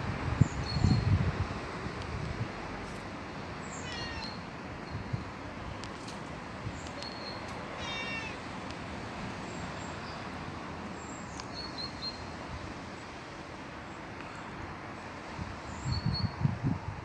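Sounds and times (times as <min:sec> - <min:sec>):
steady background noise: 0:00.0 - 0:17.0
cat meowing: 0:03.8 - 0:04.4, 0:07.8 - 0:08.4.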